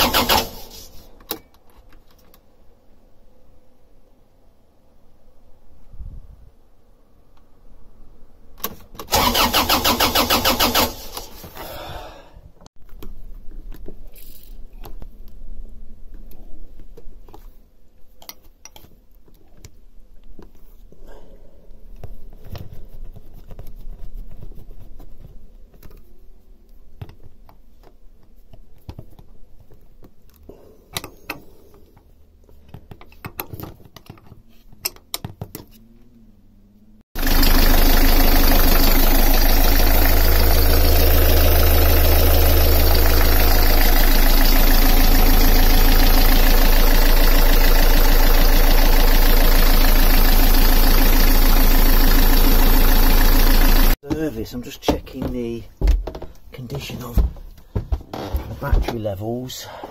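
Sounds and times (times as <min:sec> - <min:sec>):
diesel engine idling: 0:37.2 - 0:54.0.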